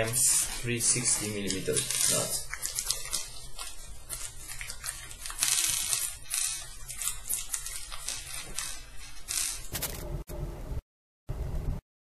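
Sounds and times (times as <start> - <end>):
clicks and scrapes of small parts: 0.0 - 10.0
low hum: 9.7 - 11.8.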